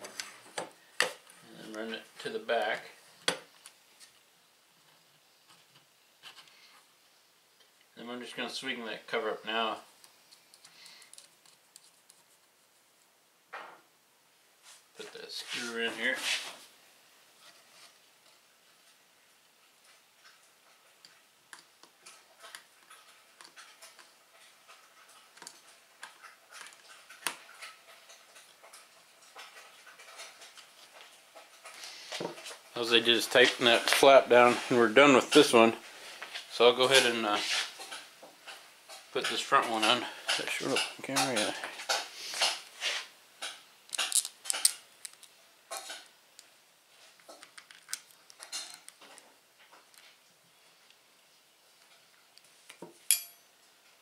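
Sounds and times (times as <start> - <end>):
small metal parts clicking and scraping: 43.4 - 46.1, 47.2 - 50.1.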